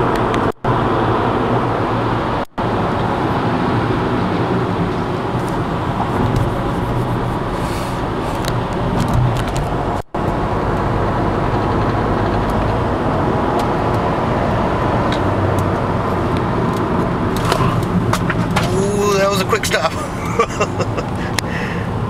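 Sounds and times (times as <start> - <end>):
in-cabin road and engine rumble: 0.0 - 22.0.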